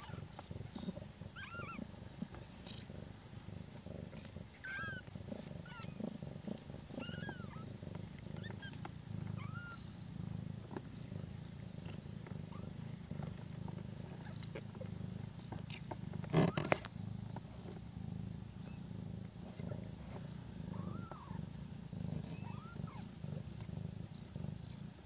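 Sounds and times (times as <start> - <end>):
kittens squeaking: 0.0 - 1.8, 4.5 - 7.7, 8.3 - 9.9, 12.5 - 12.7, 20.7 - 21.4, 22.2 - 23.1
cat purring: 0.0 - 25.0.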